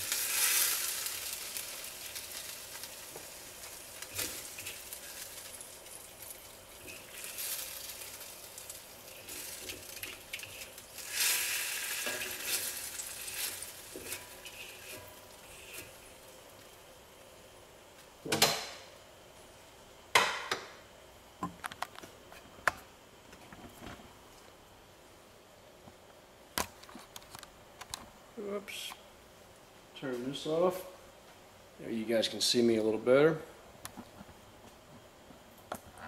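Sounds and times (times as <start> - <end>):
food stirred in a sizzling wok: 0.0 - 17.7.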